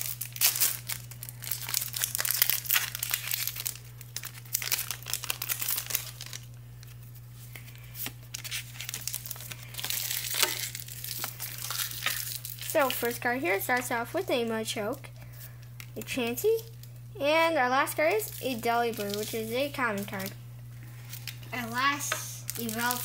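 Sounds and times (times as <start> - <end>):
foil wrapper crinkling and tearing: 0.0 - 14.2, 15.2 - 17.1, 17.9 - 23.0.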